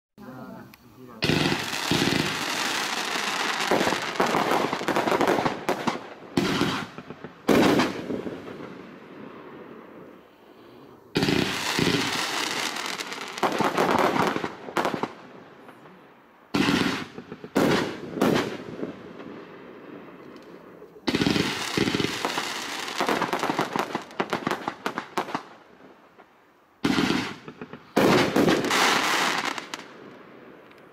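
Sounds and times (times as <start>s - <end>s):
firework cake sharp pops: 1.2s - 8.7s, 16.6s - 18.9s, 26.8s - 30.0s.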